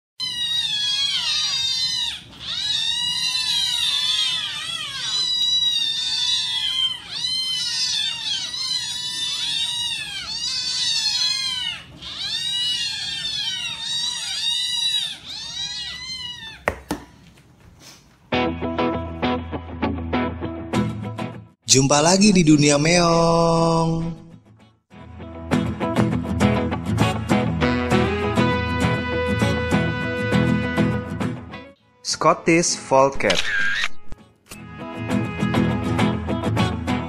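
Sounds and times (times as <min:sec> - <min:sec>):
kittens meowing: 0:00.2 - 0:16.9
music: 0:18.3 - 0:21.6, 0:23.6 - 0:32.1, 0:34.2 - 0:37.0.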